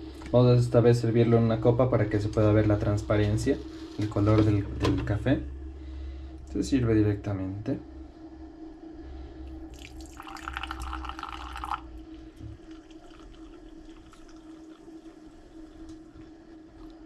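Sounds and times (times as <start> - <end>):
coffee pouring into a glass: 9.6 - 17.0.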